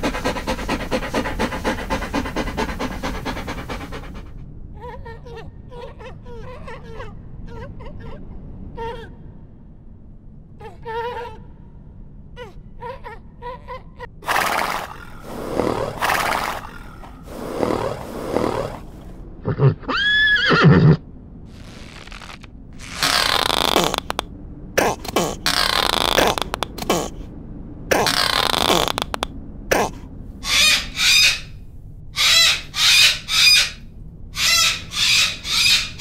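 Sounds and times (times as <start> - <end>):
horse snorting: 0.0 - 4.4, 14.2 - 19.8, 21.5 - 24.2, 24.8 - 27.2, 27.9 - 30.0
horse whinnying: 14.2 - 21.0, 22.8 - 24.2.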